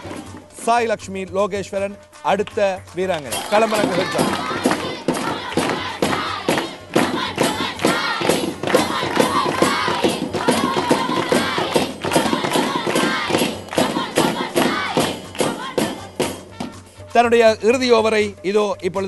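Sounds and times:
hand claps: 0:02.2 - 0:16.9
girls chanting and shouting: 0:03.4 - 0:16.7.

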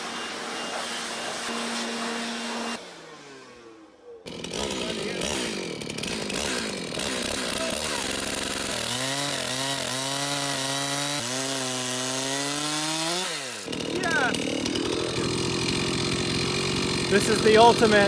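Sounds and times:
chainsaw cutting wood: 0:00.0 - 0:18.0.

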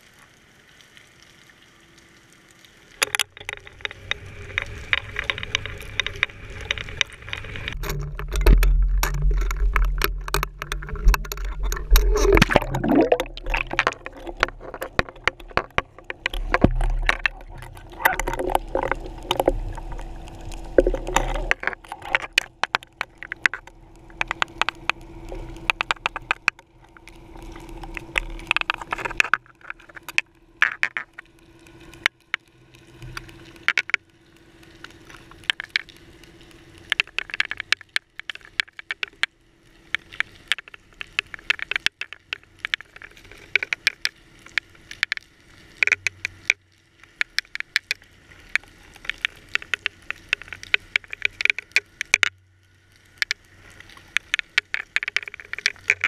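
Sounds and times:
faint steady hum: 0:00.0 - 0:56.0
underwater clicks and knocks: 0:03.0 - 0:34.1, 0:34.8 - 0:52.4, 0:53.0 - 0:56.0
low underwater rumble: 0:03.4 - 0:30.6.

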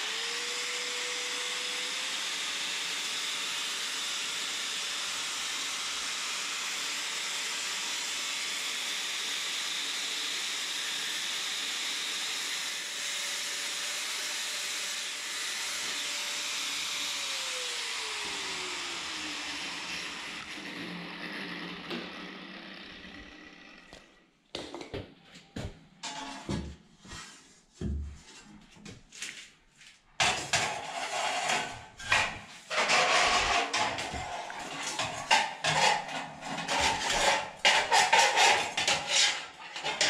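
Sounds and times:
angle grinder cutting metal: 0:00.0 - 0:24.2, 0:30.2 - 0:40.0.

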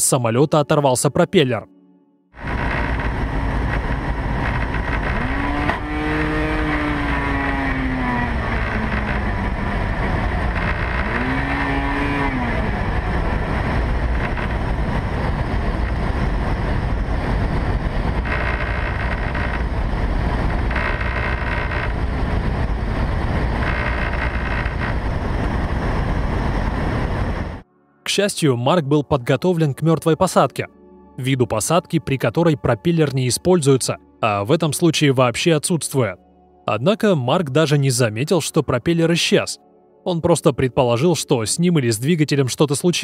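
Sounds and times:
short rising whines: 0:02.4 - 0:27.6
wind and airframe noise: 0:02.4 - 0:27.6.

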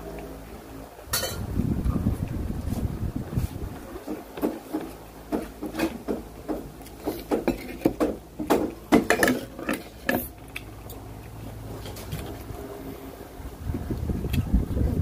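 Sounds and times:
man chewing and lip smacking: 0:10.4 - 0:12.6.

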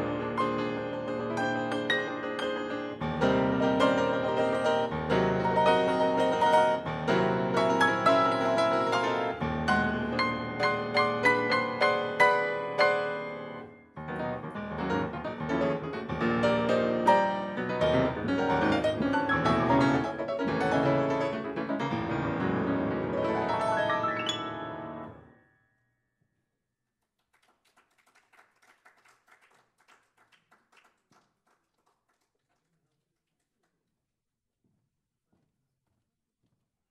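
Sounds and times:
solo piano classical piece: 0:00.0 - 0:25.2
faint scattered clapping: 0:27.1 - 0:33.8.

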